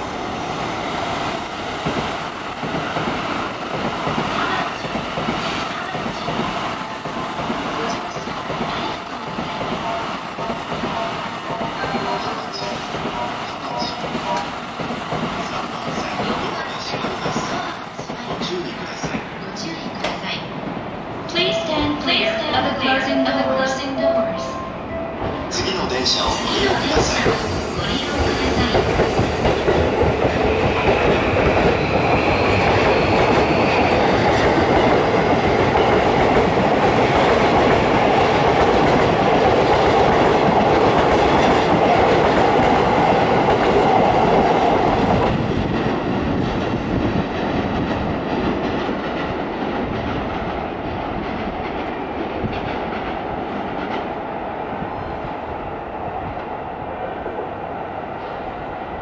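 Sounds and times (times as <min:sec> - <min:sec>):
train wheels clattering on rails: 0:01.6 - 0:20.4, 0:26.3 - 0:54.2.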